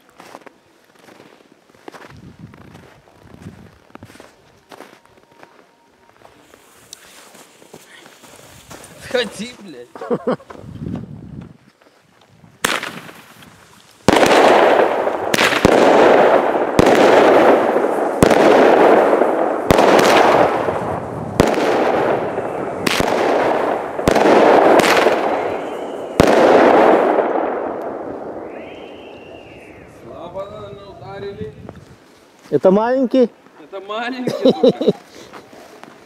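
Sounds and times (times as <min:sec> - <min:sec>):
firework bangs with crackling: 0:12.6 - 0:29.8
firework crack: 0:12.6 - 0:30.5.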